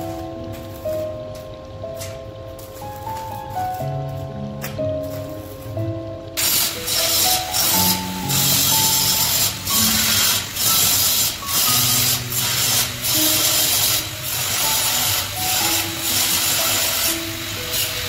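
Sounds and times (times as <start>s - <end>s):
background music melody: 0.0s - 18.0s
angle grinder grinding steel: 6.4s - 18.0s.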